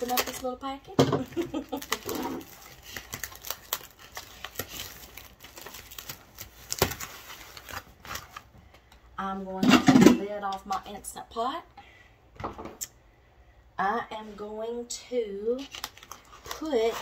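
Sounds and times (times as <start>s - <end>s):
plastic film crinkling and tearing: 0.0s - 8.5s, 15.6s - 17.0s.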